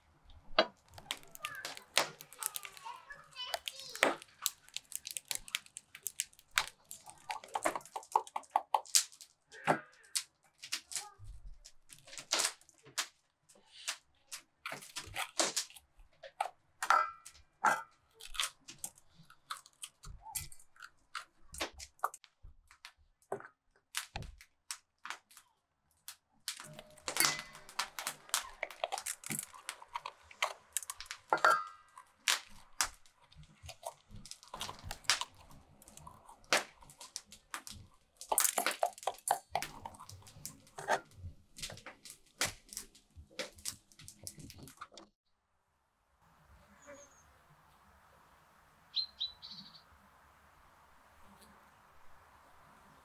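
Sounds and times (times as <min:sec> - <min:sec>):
knife crunching peppers: 0:00.8 - 0:11.1, 0:14.6 - 0:15.9, 0:17.7 - 0:22.2, 0:26.5 - 0:45.0
knife clanking on steel bowls: 0:26.7 - 0:27.9, 0:31.3 - 0:31.8.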